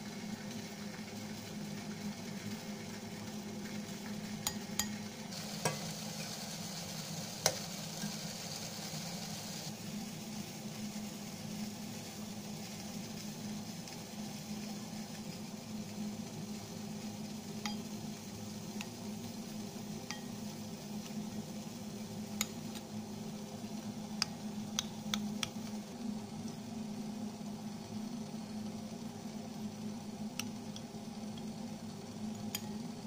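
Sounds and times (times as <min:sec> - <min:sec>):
steady low hum: 0:00.0 - 0:33.0
spoon clinking against bowl: 0:17.6 - 0:17.9, 0:20.1 - 0:20.4.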